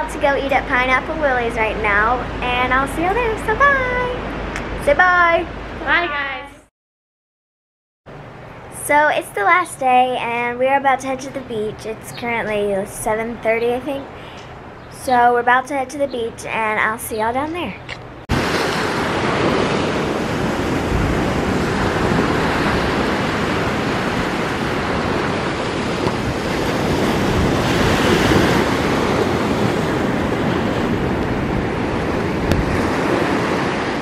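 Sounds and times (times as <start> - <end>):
wind rumbling on microphone: 17.8 - 34.0
surf washing up a beach: 18.3 - 34.0.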